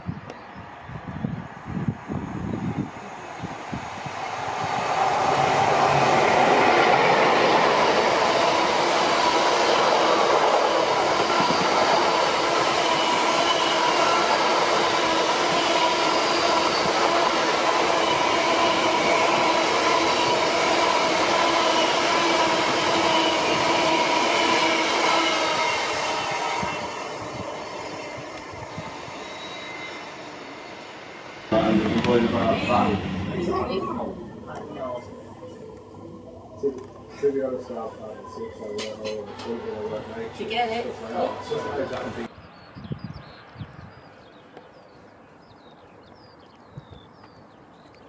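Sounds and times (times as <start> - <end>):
train wheel rush: 0.6 - 42.3
high whining tones: 7.4 - 42.3.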